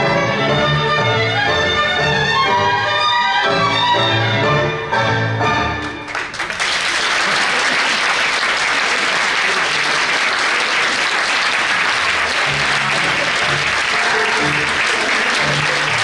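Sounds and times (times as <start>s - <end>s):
tango music: 0.0s - 6.3s, 9.5s - 16.0s
audience applauding: 5.8s - 16.0s.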